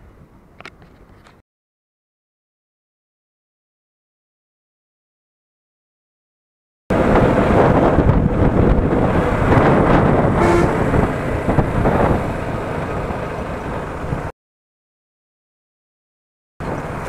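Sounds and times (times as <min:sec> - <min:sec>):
motorcycle engine and road noise: 0:06.9 - 0:14.3, 0:16.6 - 0:17.0
wind rushing over microphone: 0:06.9 - 0:14.3
horn honk: 0:10.3 - 0:11.0.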